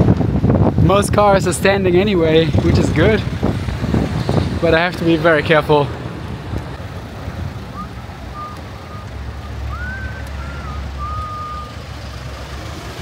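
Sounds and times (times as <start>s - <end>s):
low rumble of car traffic: 0.0s - 13.0s
short high whistle-like tones: 7.7s - 11.8s.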